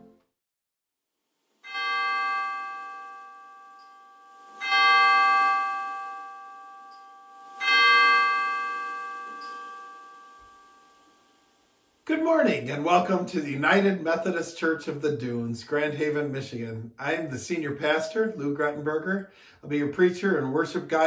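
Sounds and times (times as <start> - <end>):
bell ringing: 1.7 - 11.4.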